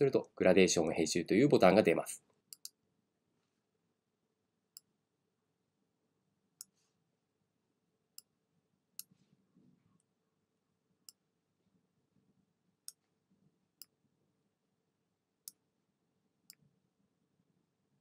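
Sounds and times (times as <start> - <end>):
computer mouse clicking: 2.5 - 2.8.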